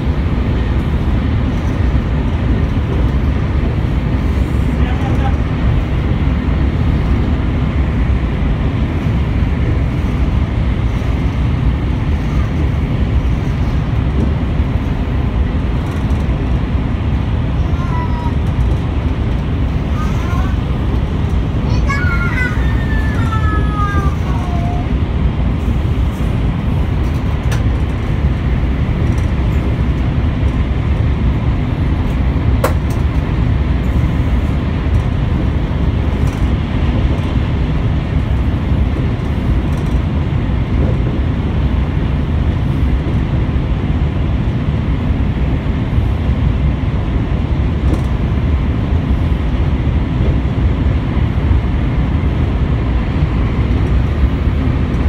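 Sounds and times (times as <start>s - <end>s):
air noise inside train: 0.0s - 55.0s
train wheels on rail: 0.0s - 55.0s.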